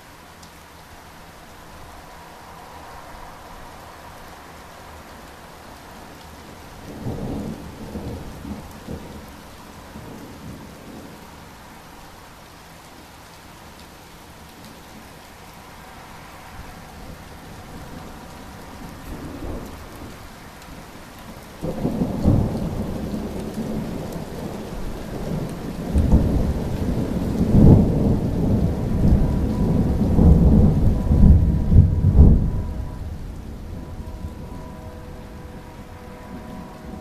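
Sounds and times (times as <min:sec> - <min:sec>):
steady rain: 0:00.0 - 0:37.0
thunder rumbling: 0:06.6 - 0:11.4, 0:16.7 - 0:20.2, 0:21.6 - 0:37.0.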